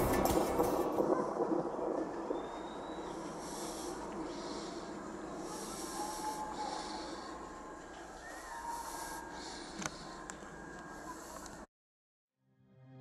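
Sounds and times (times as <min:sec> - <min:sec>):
steady background rush: 0:00.0 - 0:08.1.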